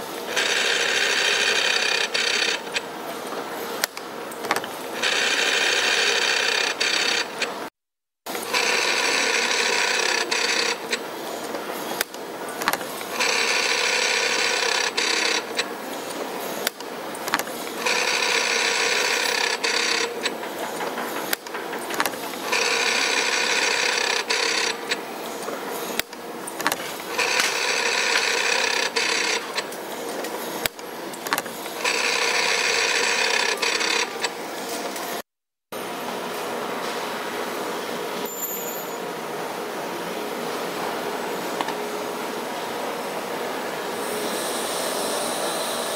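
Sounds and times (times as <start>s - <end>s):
spring forming machine whirring: 0.0s - 7.7s, 8.3s - 35.2s
forming tools clicking and knocking: 10.3s - 13.6s, 14.8s - 32.1s.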